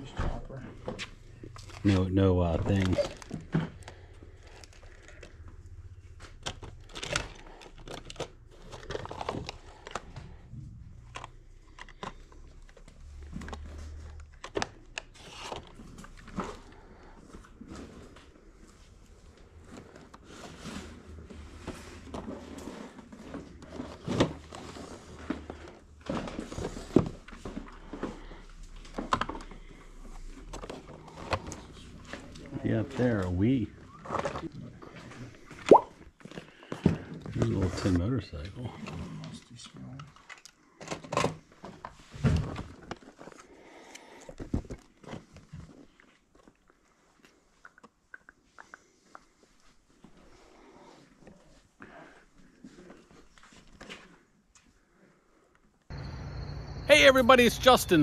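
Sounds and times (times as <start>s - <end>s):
toy trucks clicking and rustling: 6.2s - 10.4s.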